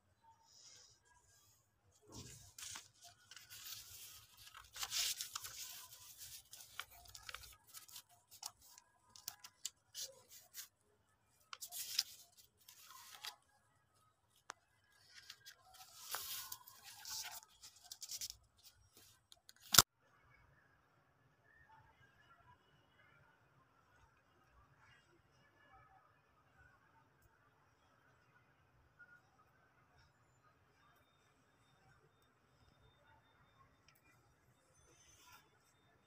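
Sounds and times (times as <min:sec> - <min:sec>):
paper rustling and crinkling: 0:02.0 - 0:10.8, 0:11.4 - 0:13.5, 0:14.9 - 0:19.8.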